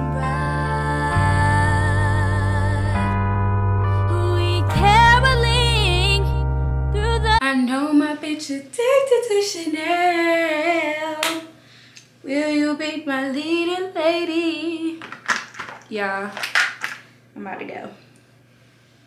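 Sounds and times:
woman singing unaccompanied: 0.0 - 3.1, 4.0 - 6.4, 7.0 - 11.6, 12.2 - 15.0.

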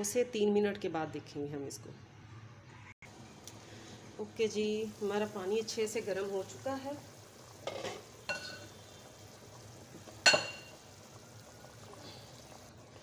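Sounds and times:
stock simmering in pot: 3.1 - 13.0.

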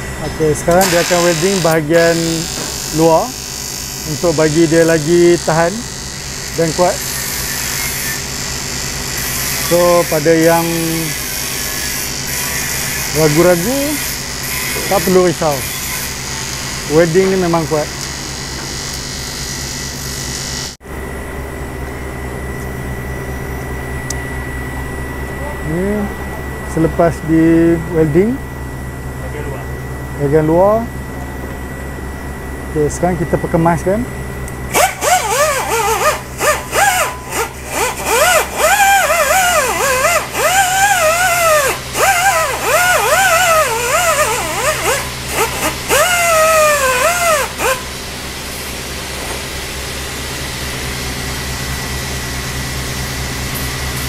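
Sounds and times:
thin high whine: 0.0 - 20.8, 21.4 - 54.0
welder buzzing: 0.0 - 20.8, 33.6 - 54.0
electric arc welding hiss: 0.8 - 11.2.

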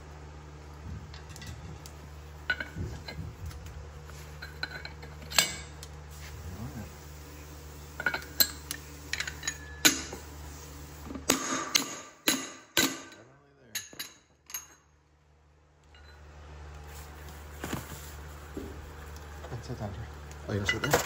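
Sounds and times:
low hum: 0.0 - 12.4.

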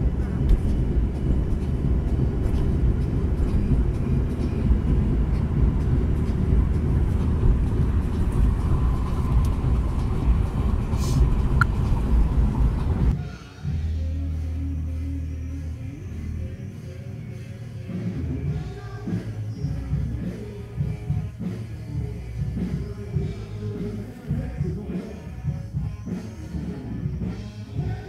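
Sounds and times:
car cabin road noise: 0.0 - 13.2.

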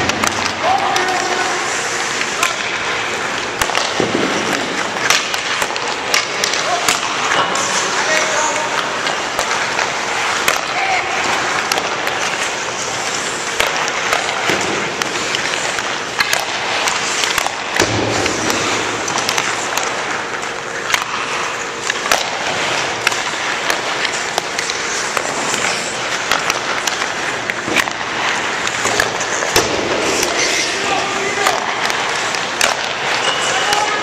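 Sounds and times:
hockey sticks clacking pucks: 0.0 - 34.0
skates scraping on ice: 0.0 - 34.0.

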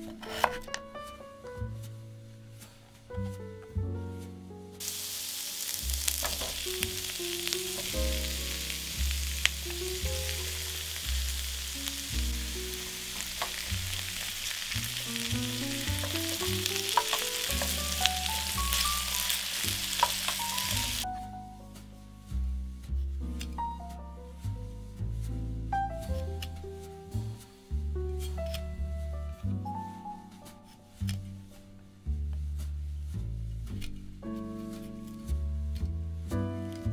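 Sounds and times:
background music with bass: 0.0 - 36.9
vegetables sizzling in oil: 4.8 - 21.0.

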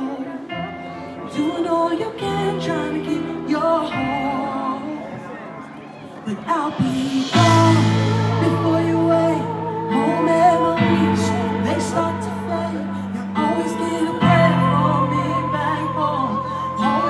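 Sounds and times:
wavering sung melody: 6.3 - 17.0
held low chords: 6.7 - 17.0.

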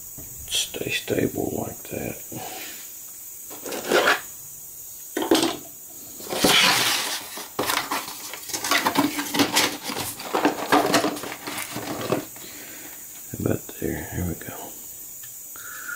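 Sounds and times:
cardboard box scraping on bench: 3.5 - 4.2.

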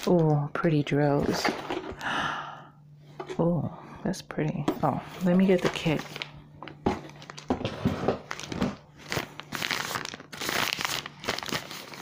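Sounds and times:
plastic packaging crinkling: 5.2 - 12.0.

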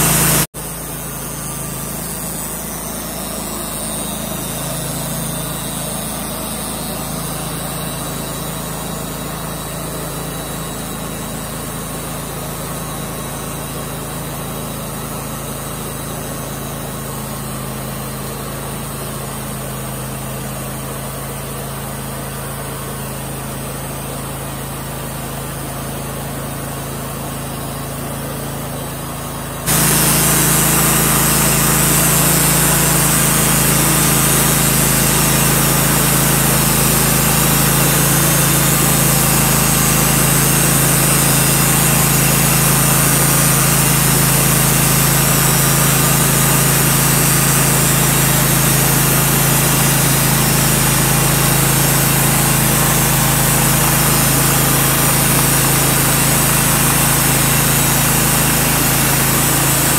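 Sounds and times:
band saw blade cutting log: 0.0 - 13.6, 29.7 - 59.9
gas engine running: 0.0 - 59.9.

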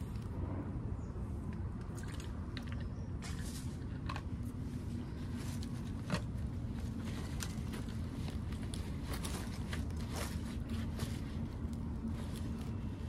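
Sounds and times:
low rumble: 0.0 - 3.8
dry leaves crackling: 5.2 - 13.0
nylon backpack rustling: 5.2 - 13.0.

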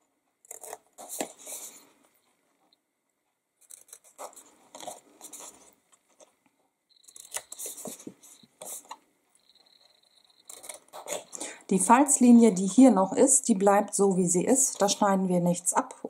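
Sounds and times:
card rustling: 0.5 - 2.0, 3.6 - 6.4, 7.0 - 9.0.

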